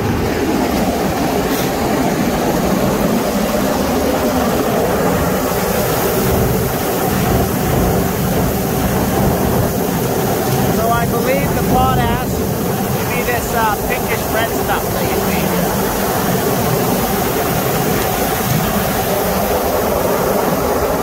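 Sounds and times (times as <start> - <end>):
loading machinery running: 0.0 - 21.0.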